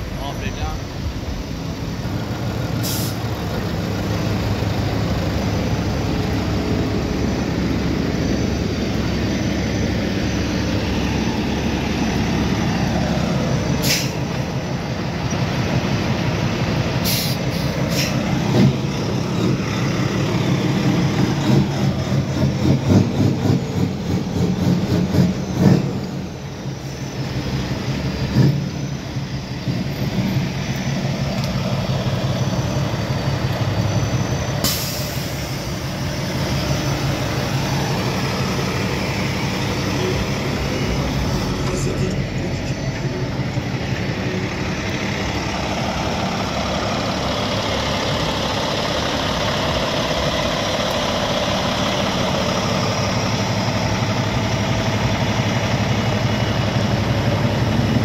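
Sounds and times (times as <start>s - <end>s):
truck diesel engines running: 0.0s - 58.0s
air brake hisses: 2.8s - 3.3s, 13.8s - 14.3s, 17.0s - 18.2s, 34.6s - 35.6s.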